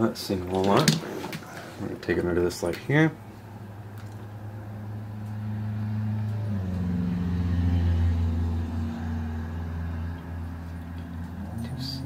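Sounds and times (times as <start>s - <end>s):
low engine-like hum: 3.2s - 12.0s.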